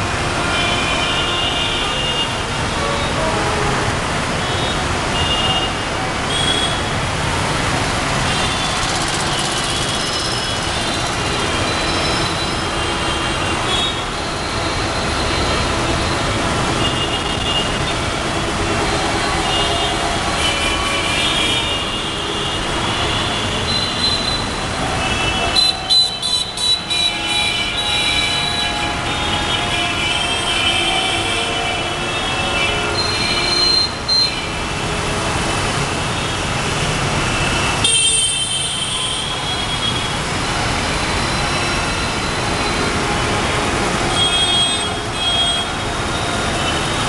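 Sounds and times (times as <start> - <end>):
road and engine noise: 0.0 - 47.0.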